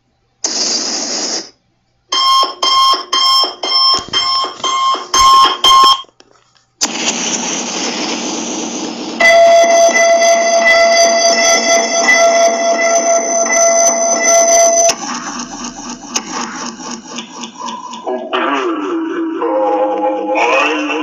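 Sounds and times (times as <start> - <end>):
hiss burst: 0.4 - 1.6, 6.8 - 9.3
buzzing alarm tone: 2.1 - 6.1, 9.0 - 21.0
electronic alarm beeping: 2.1 - 6.1, 9.2 - 18.4
rushing noise: 6.8 - 19.4.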